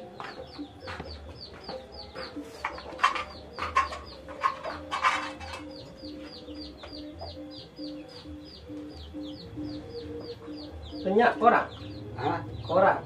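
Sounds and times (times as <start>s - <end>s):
chickens clucking: 0.0s - 13.0s
chicks peeping: 0.0s - 13.0s.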